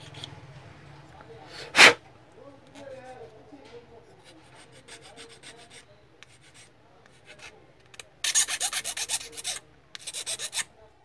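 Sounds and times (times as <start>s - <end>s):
file rasping on plastic: 1.8s - 2.0s, 4.3s - 10.7s.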